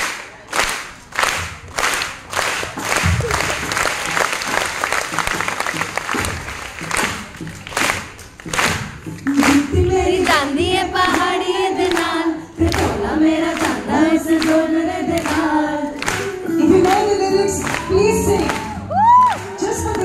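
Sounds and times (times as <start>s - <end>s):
audience clapping a beat: 0.0s - 20.0s
woman singing into a microphone: 9.5s - 20.0s.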